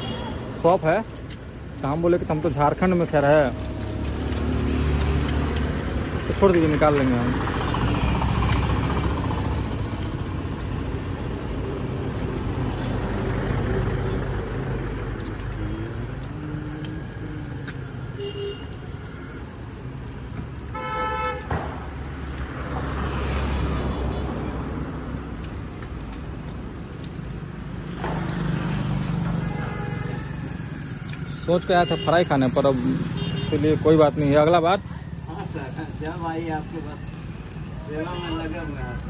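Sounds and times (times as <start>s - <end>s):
vehicle horn toot: 0.0s - 0.4s, 18.2s - 18.7s, 20.7s - 21.5s, 29.4s - 30.3s, 31.7s - 32.4s, 33.1s - 33.8s, 38.0s - 39.0s
road traffic passing: 0.0s - 39.0s.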